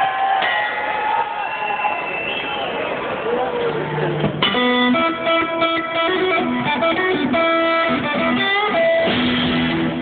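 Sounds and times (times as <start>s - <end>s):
electric guitar lead melody: 4.3s - 10.0s.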